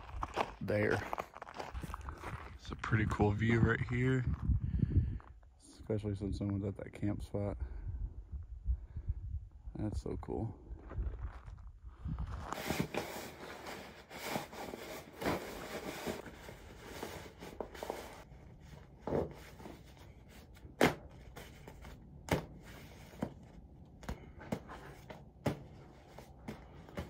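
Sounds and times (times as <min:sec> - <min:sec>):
bag rustling and crinkling: 0:12.2 - 0:23.7.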